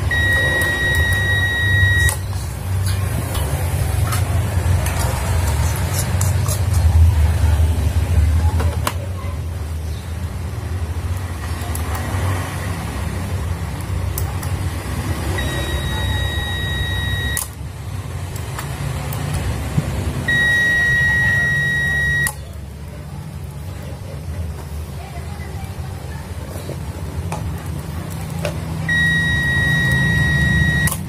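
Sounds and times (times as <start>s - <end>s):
transformer low hum: 0.0s - 5.8s, 25.6s - 31.0s
buzzer long beeps: 0.1s - 2.2s, 15.4s - 17.5s, 20.3s - 22.4s, 28.9s - 31.0s.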